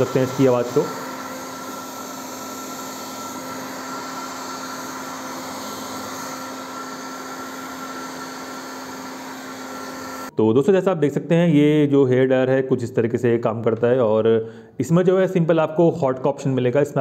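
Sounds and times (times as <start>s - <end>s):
hair dryer running: 0.0s - 10.3s.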